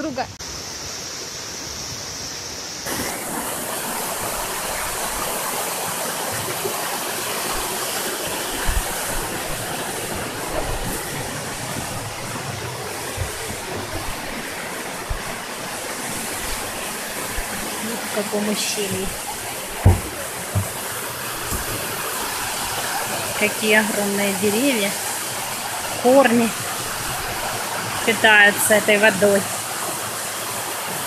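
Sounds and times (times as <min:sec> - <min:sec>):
stream rushing over rock: 0:00.0 - 0:31.0
dull low bumps: 0:08.4 - 0:22.8.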